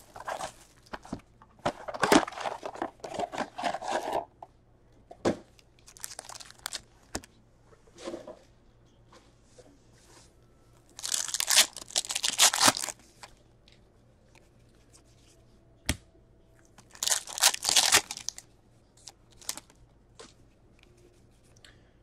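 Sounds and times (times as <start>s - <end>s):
card pack wrappers ripping: 5.9s - 6.8s, 11.0s - 13.0s, 16.8s - 18.4s, 19.0s - 19.7s.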